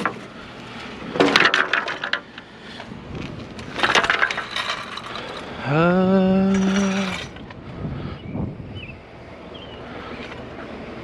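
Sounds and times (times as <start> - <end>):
junk clattering and rattling: 1.1 - 2.4, 3.6 - 5.5.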